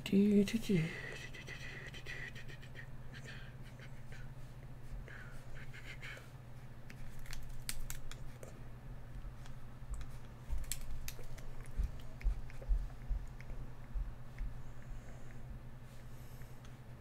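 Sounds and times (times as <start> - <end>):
steady low hum: 0.0 - 17.0
soft low thumps: 9.8 - 14.8.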